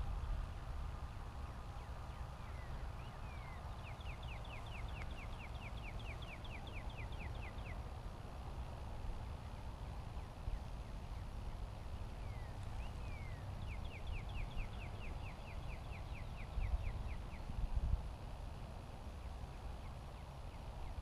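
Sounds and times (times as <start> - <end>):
faint bird chirps: 1.4 - 7.9, 9.2 - 17.6
songbird trilling: 2.4 - 7.8, 12.1 - 17.5
wind on microphone: 16.4 - 18.3.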